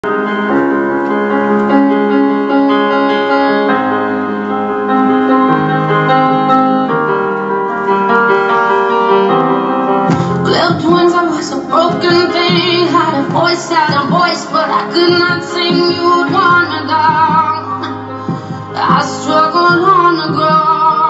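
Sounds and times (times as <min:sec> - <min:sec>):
solo piano slow chords: 0:00.0 - 0:21.0.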